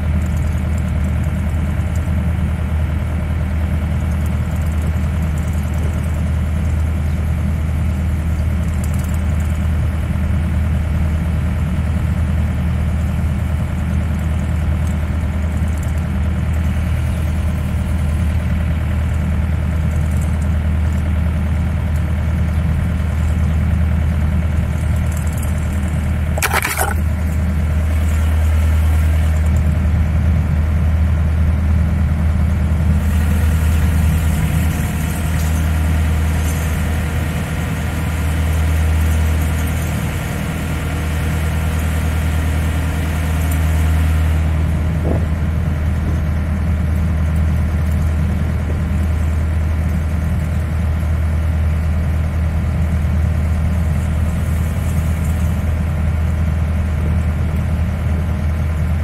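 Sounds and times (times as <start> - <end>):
diesel boat engine thrumming: 0.0 - 59.0.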